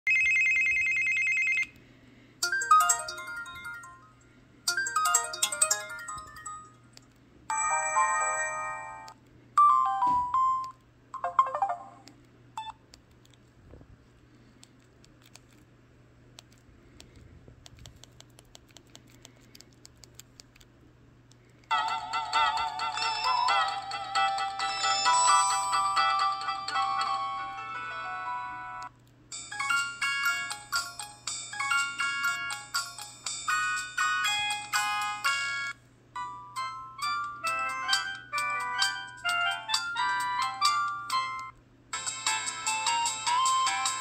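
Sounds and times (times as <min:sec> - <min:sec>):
phone ringtones: 0:00.1 - 0:01.7, 0:07.5 - 0:12.0.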